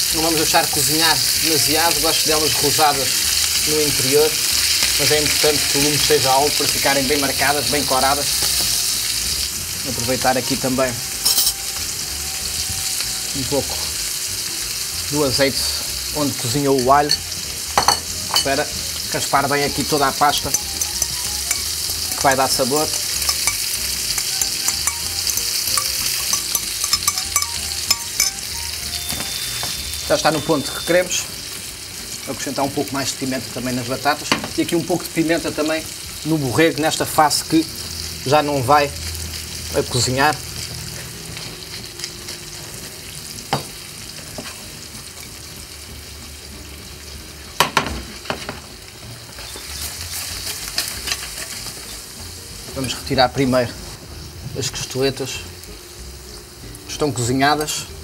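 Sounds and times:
meat sizzling with spitting pops: 0.0s - 58.0s
metal spoon scraping ceramic bowl: 11.2s - 11.6s, 20.4s - 28.5s
utensil clinking against pan: 11.2s - 11.6s, 16.8s - 18.6s, 20.3s - 28.5s.

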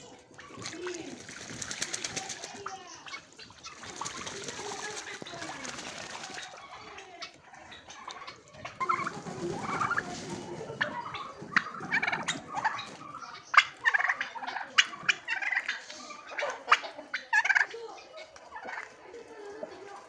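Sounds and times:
turkeys gobbling: 0.0s - 20.0s
wings flapping: 0.2s - 15.2s.

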